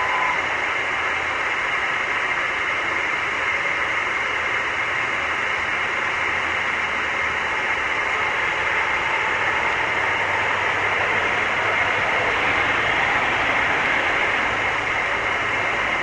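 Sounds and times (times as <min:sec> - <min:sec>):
faint whistle: 0:00.0 - 0:00.6.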